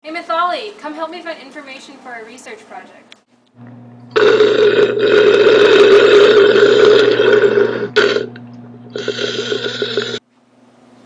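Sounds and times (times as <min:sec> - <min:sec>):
person belching: 0:04.1 - 0:10.2.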